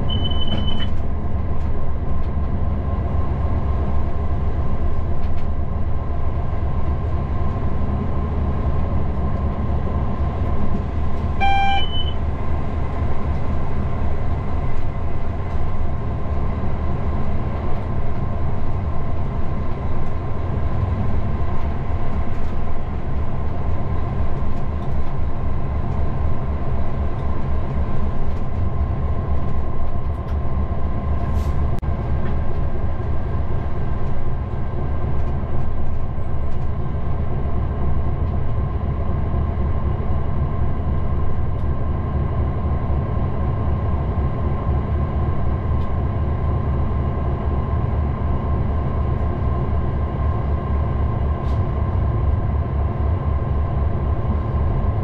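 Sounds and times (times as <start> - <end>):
short beep: 0.0 - 0.9, 11.4 - 12.2
diesel locomotive engine: 0.0 - 55.0
train wheels on rails: 0.0 - 55.0.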